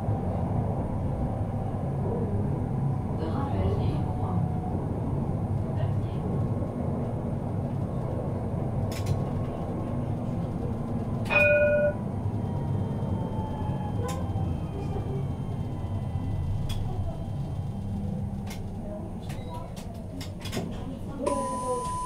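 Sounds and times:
tram rumbling on rails: 0.0 - 22.0
tram bell ding: 11.3 - 12.0.

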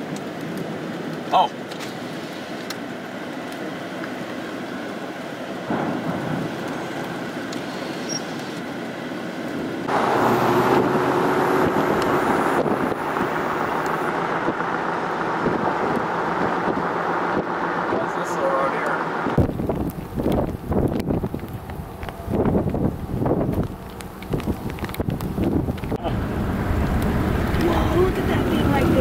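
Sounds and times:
vehicle running: 3.3 - 29.0
wind rushing: 9.6 - 18.2, 19.0 - 29.0.

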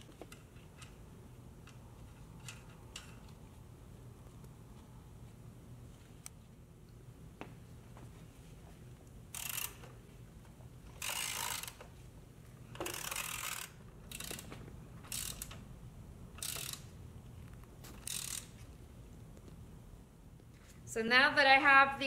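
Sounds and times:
ratchet wrench clicking: 9.3 - 10.0, 11.0 - 11.8, 12.7 - 15.6, 16.3 - 16.9, 18.0 - 18.6.

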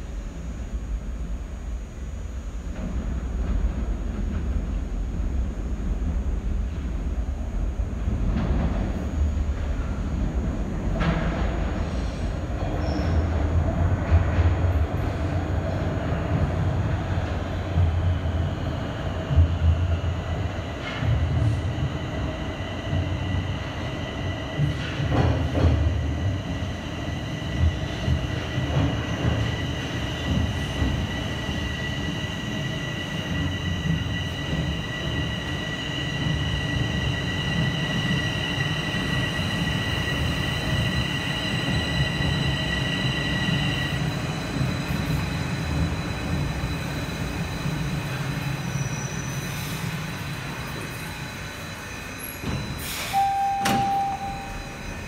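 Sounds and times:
train wheels rumbling on rail: 0.0 - 55.0
high-pitched train whine: 17.3 - 55.0
short tone: 53.0 - 55.0.

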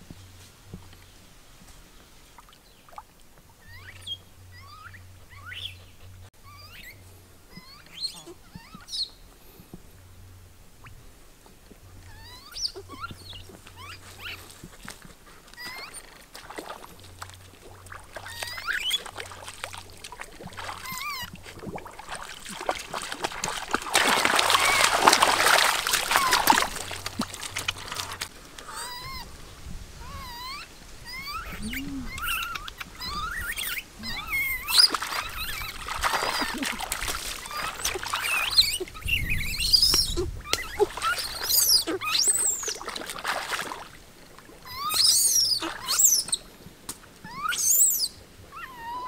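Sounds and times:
high squeaky calls: 3.6 - 9.2, 12.0 - 14.6, 15.6 - 16.2, 18.2 - 29.3, 30.0 - 43.0, 44.6 - 46.5, 47.2 - 49.0
water splashing and sloshing: 7.5 - 49.0.

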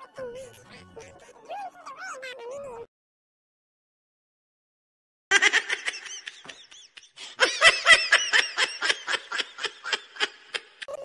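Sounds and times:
high-pitched laugh: 5.3 - 11.0.

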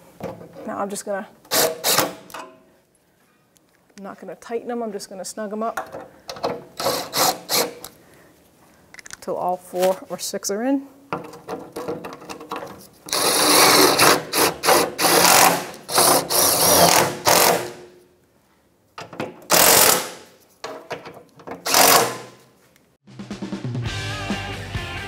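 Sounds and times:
cordless power driver running bolts: 13.1 - 17.8, 19.5 - 20.2, 21.6 - 22.3.

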